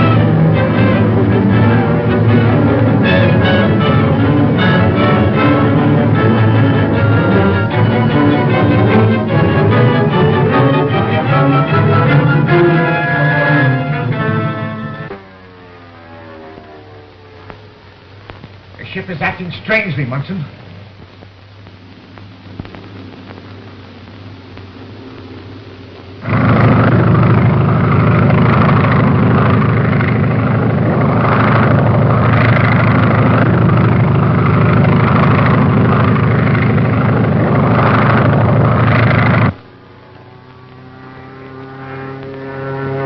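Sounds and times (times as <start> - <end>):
propeller aircraft engine: 0.0 - 43.0
rushing air: 20.5 - 39.6.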